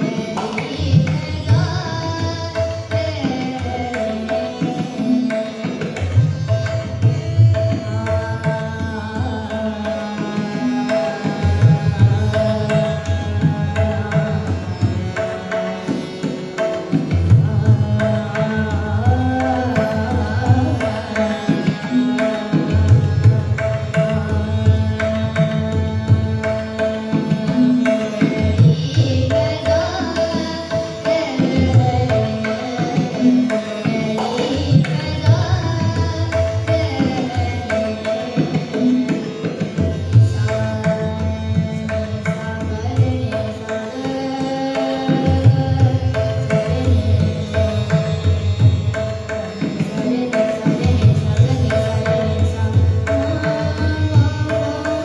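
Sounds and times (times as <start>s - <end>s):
girl singing: 0.0s - 5.8s, 28.4s - 38.7s, 40.2s - 47.3s, 49.8s - 55.0s
harmonium: 0.0s - 55.0s
tabla strokes: 0.0s - 55.0s
tanpura drone: 0.0s - 55.0s.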